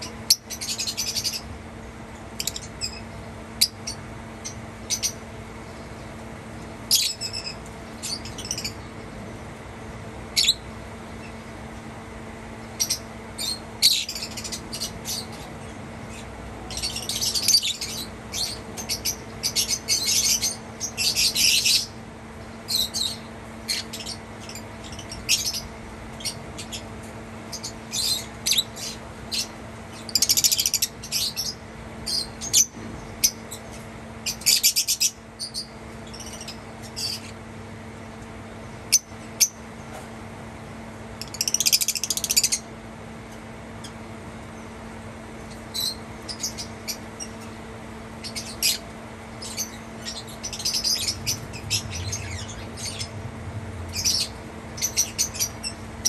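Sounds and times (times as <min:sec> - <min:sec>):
lovebirds chirping: 0:00.0 - 0:01.5, 0:02.3 - 0:06.2, 0:06.9 - 0:09.2, 0:10.3 - 0:10.6, 0:12.7 - 0:26.9, 0:48.2 - 0:53.2, 0:53.9 - 0:56.0.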